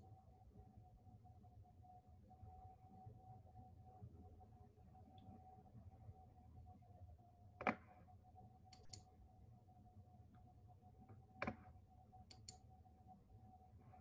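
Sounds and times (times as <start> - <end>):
faint steady hum: 0.0 - 14.0
soft clicks: 8.7 - 9.1, 12.2 - 12.7.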